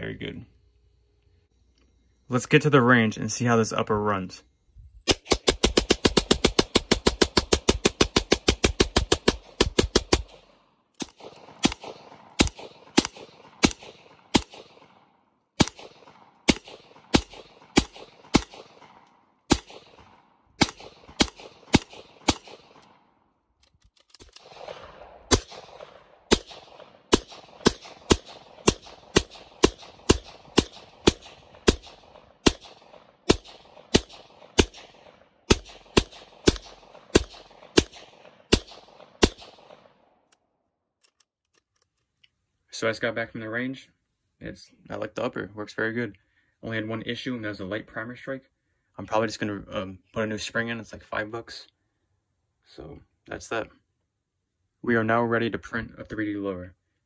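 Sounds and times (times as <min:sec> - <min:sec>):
pistol shots with echo: 0:05.1 - 0:23.2, 0:24.2 - 0:40.2.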